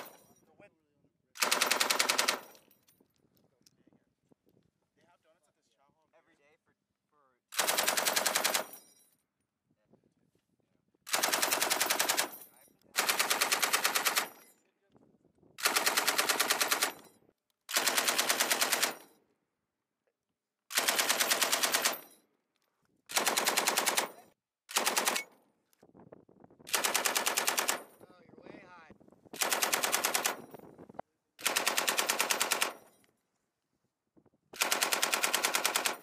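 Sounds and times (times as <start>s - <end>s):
machine gun firing bursts: 1.4s - 2.6s, 7.5s - 8.7s, 11.1s - 12.4s, 13.0s - 14.4s, 15.6s - 17.0s, 17.7s - 19.1s, 20.7s - 22.1s, 23.1s - 25.3s, 26.7s - 27.9s, 29.4s - 30.5s, 31.4s - 32.9s, 34.6s - 36.0s.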